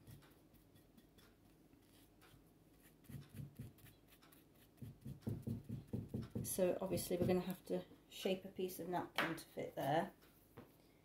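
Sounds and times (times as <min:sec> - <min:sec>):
soft handling knocks: 0:05.3 - 0:07.6.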